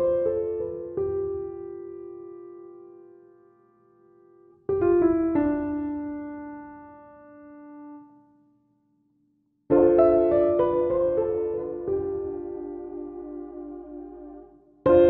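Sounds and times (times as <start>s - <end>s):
piano music: 4.7s - 8.0s, 9.7s - 15.0s.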